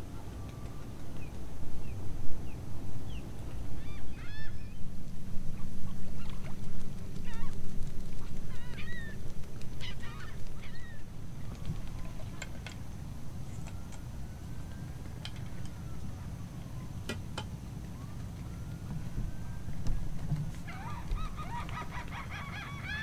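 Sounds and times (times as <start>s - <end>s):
waterbirds honking: 8.5s - 23.0s.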